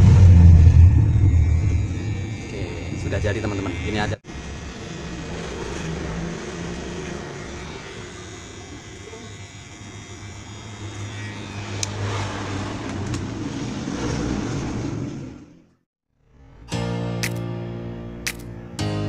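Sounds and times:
electric hair clipper buzzing: 0:01.0 - 0:13.2, 0:17.2 - 0:17.5, 0:18.2 - 0:18.7.

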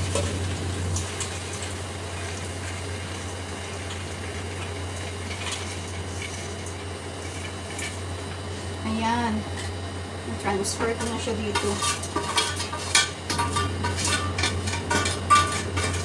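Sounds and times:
constant low hum: 0:00.0 - 0:16.0.

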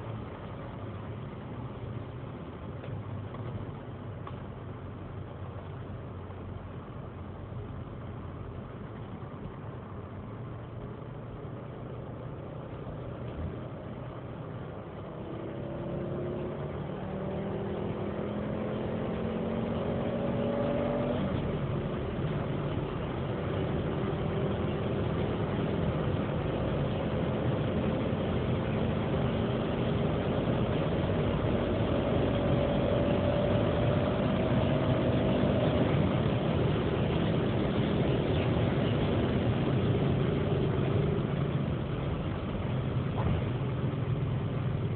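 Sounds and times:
wind and road noise: 0:00.0 - 0:44.9
car engine accelerating hard: 0:11.0 - 0:44.9.

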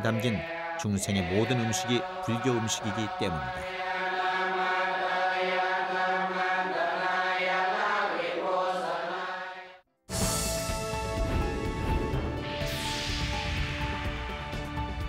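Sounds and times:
theme music: 0:00.0 - 0:04.4, 0:10.1 - 0:15.0
monks chanting: 0:00.0 - 0:09.8
low drone: 0:10.2 - 0:15.0.

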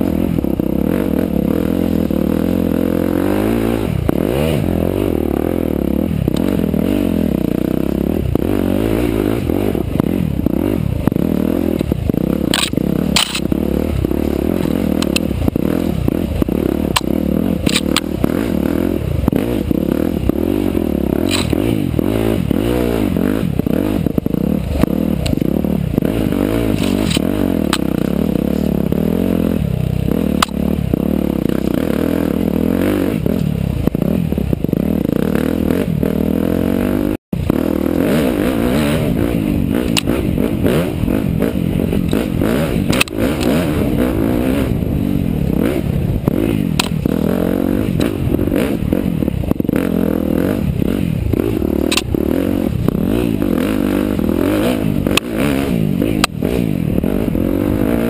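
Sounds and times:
dirt bike engine revving: 0:00.0 - 0:58.0
sharp clicks: 0:12.5 - 0:13.5, 0:16.9 - 0:18.2, 0:21.3 - 0:21.6, 0:42.9 - 0:43.5, 0:46.8 - 0:47.0, 0:51.8 - 0:52.1.

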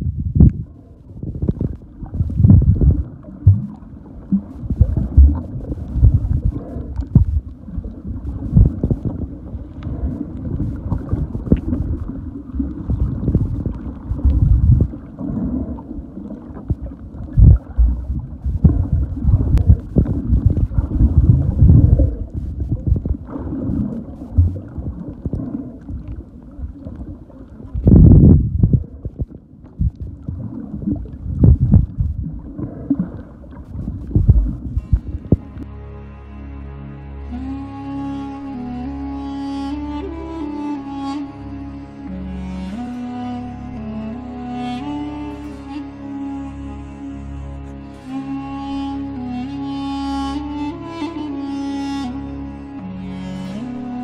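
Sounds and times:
muffled underwater water rumble: 0:00.0 - 0:35.7
dull underwater knocks: 0:01.4 - 0:07.5, 0:08.3 - 0:09.2, 0:10.7 - 0:12.1, 0:17.4 - 0:25.5, 0:27.8 - 0:30.6, 0:31.3 - 0:35.6.

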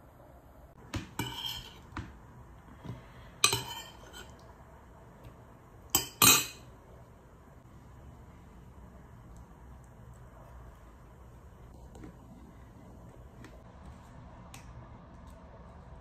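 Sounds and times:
metal spoon clinking on dishes: 0:01.1 - 0:01.8, 0:03.4 - 0:04.4, 0:06.0 - 0:06.7.

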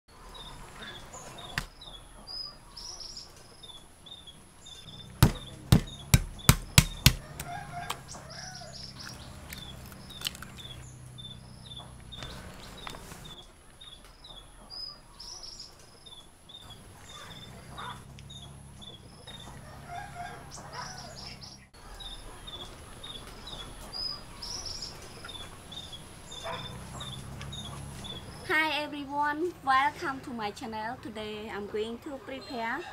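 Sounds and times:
birds chirping: 0:00.1 - 0:32.9
sharp knocks: 0:05.2 - 0:07.5.

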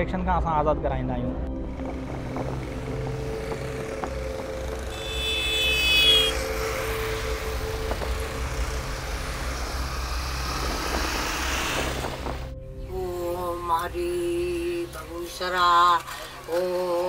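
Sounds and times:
auto-rickshaw engine running: 0:01.5 - 0:12.6
light road traffic: 0:01.5 - 0:12.9
vehicle horn: 0:04.8 - 0:06.8.

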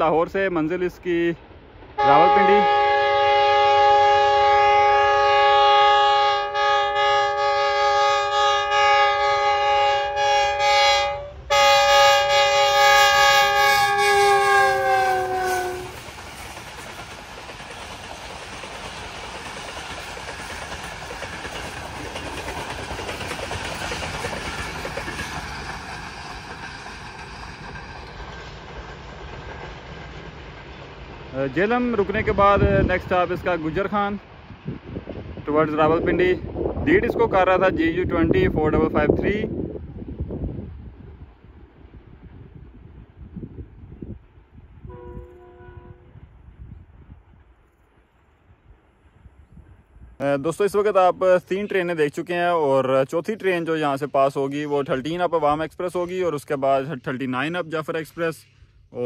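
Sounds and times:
train wheels on track: 0:00.0 - 0:59.0
locomotive horn blast: 0:02.0 - 0:16.0, 0:44.9 - 0:46.2.

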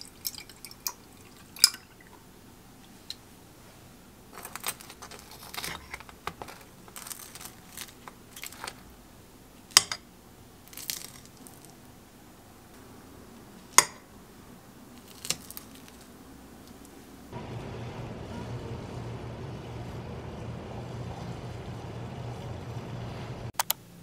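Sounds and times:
pastry crust crunching: 0:04.4 - 0:08.9, 0:10.7 - 0:11.8, 0:15.0 - 0:16.1.

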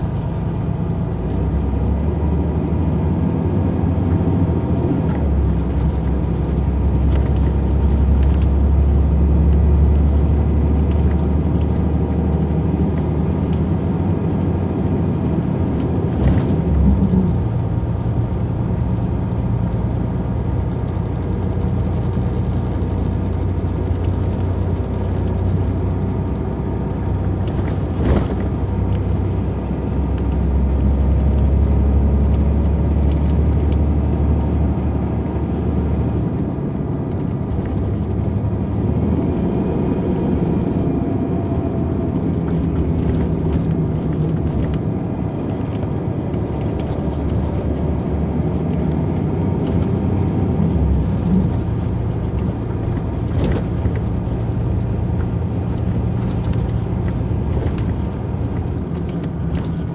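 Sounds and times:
bus diesel engine running: 0:00.0 - 0:59.9.

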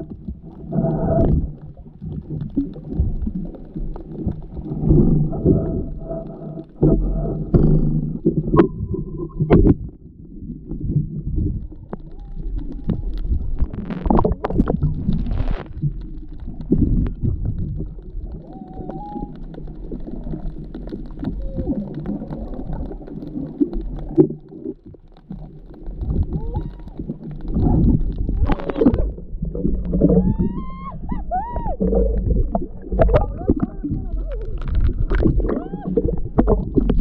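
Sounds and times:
low rumbling: 0:00.0 - 0:37.0
muffled underwater water movement: 0:00.0 - 0:37.0.

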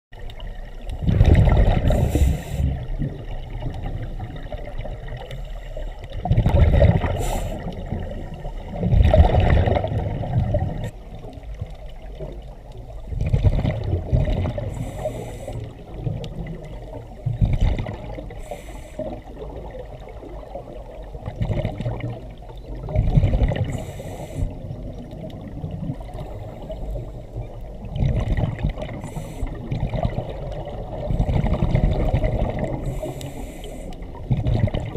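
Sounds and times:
exhaled air bubbling: 0:00.2 - 0:34.9
regulator hiss on inhale: 0:01.8 - 0:02.8, 0:07.1 - 0:08.8, 0:14.7 - 0:15.8, 0:18.3 - 0:19.3, 0:23.7 - 0:24.7, 0:28.9 - 0:29.6, 0:32.8 - 0:34.2.

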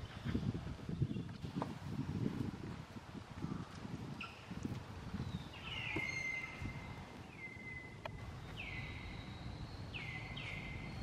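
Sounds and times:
low outdoor background noise: 0:00.0 - 0:11.0.

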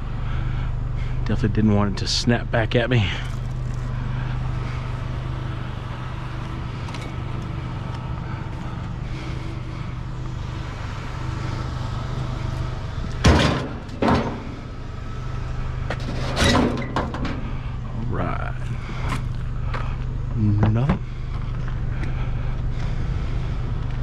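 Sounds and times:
vehicle engine idling: 0:00.0 - 0:24.0
loud clattering knocks: 0:13.2 - 0:14.6.

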